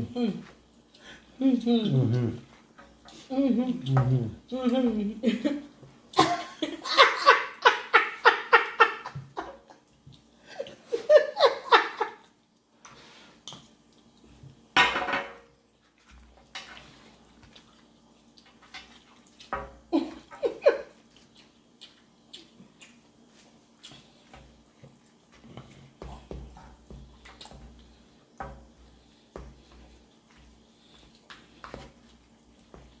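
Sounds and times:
faint steady hum: 0.0s - 33.0s
chewing: 9.6s - 10.8s, 12.2s - 14.7s, 15.7s - 20.3s, 20.9s - 33.0s.

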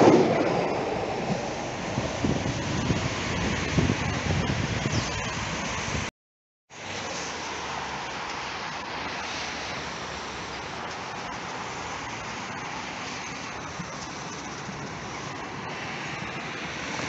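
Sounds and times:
road traffic: 0.0s - 6.1s, 6.7s - 17.0s
tram rolling along tracks: 0.0s - 6.1s, 6.7s - 17.0s
wind on microphone: 0.0s - 6.1s.

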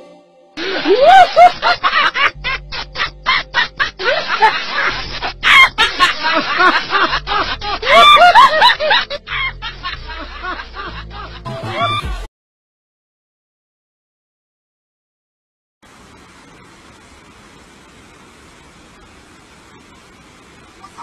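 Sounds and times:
choppy bursts of laughter: 0.6s - 12.3s
background music with bass line: 2.2s - 12.3s.

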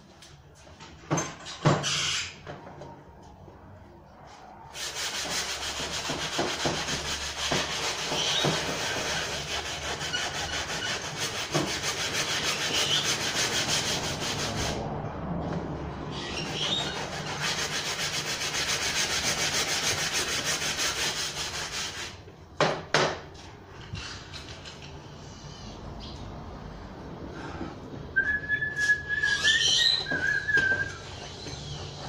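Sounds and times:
person whistling a note: 28.2s - 31.1s.

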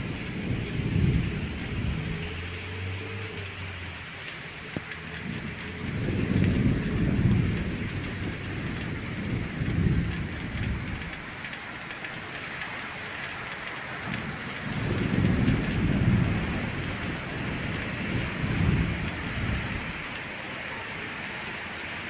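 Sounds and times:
low rumbling: 0.0s - 12.8s, 14.0s - 21.5s
rain hissing: 0.0s - 22.0s.

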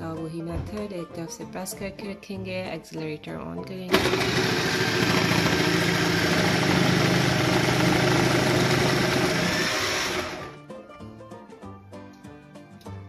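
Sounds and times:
hand blender motor shredding: 3.9s - 10.6s.

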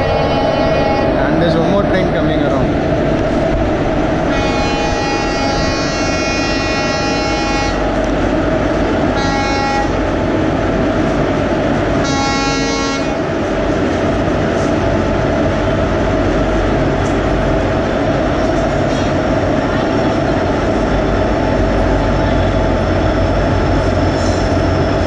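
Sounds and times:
locomotive horn blasts: 0.0s - 1.3s, 4.3s - 7.9s, 9.1s - 10.0s, 12.0s - 13.2s
locomotive humming: 0.0s - 25.0s.

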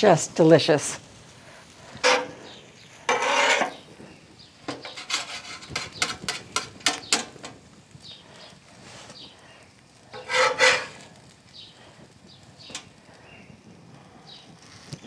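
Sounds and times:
metal spatula scraping griddle: 1.6s - 7.6s, 10.0s - 11.4s.

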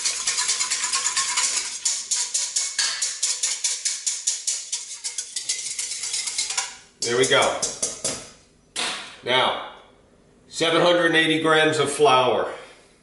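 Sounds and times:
whisk clicking against steel bowl: 0.0s - 8.1s.

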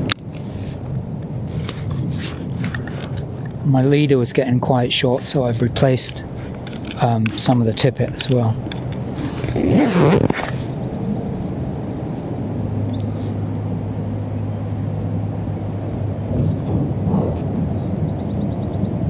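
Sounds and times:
distant motor drone: 0.0s - 19.0s
wind rumble on microphone: 0.0s - 19.0s.

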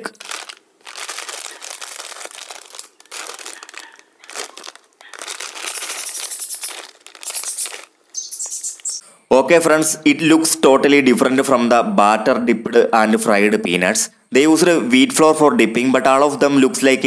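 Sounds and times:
snack packet crinkling: 0.0s - 9.0s
peanuts pouring out: 0.2s - 7.9s.

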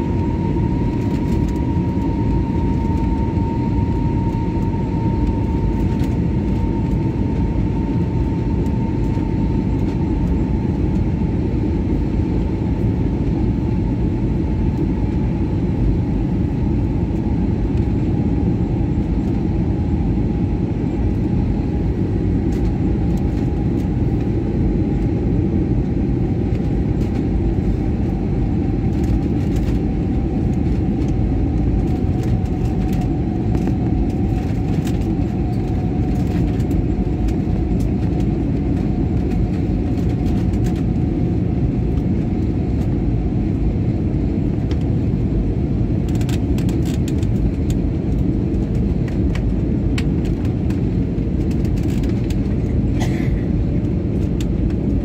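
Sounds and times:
whining engine tone: 0.0s - 43.9s
jet engine cabin rumble: 0.0s - 55.0s.

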